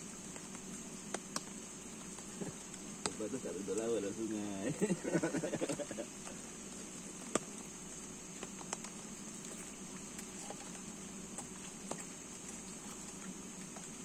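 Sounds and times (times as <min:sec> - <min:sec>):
faint low hum: 0:00.0 - 0:14.0
steady high hiss: 0:00.0 - 0:14.0
light taps and clicks: 0:00.3 - 0:03.9.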